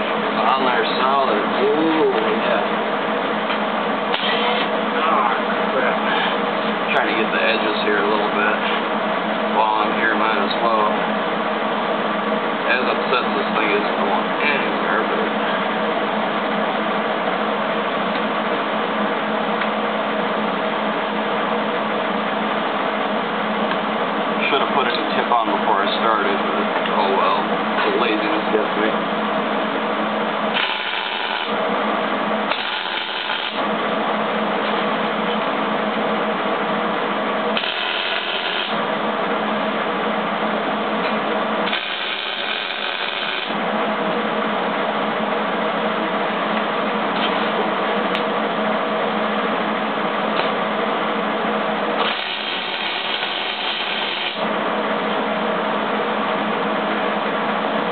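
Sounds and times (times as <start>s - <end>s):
steady mechanical hum: 0.0s - 57.9s
welder arc hissing: 4.1s - 4.8s, 30.5s - 31.6s, 32.5s - 33.6s, 37.5s - 38.9s, 41.6s - 43.6s, 52.0s - 54.5s.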